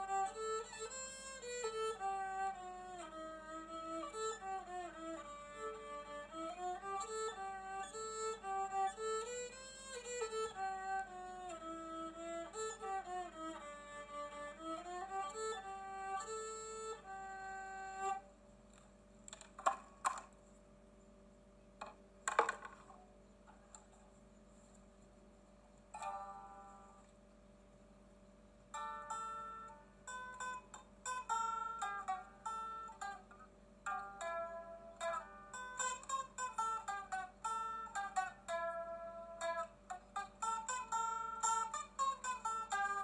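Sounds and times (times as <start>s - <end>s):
bowed lyra folk melody: 0.0s - 20.3s, 25.9s - 27.2s, 28.6s - 43.0s
instrument handling knocks: 19.3s - 20.4s, 21.8s - 23.1s.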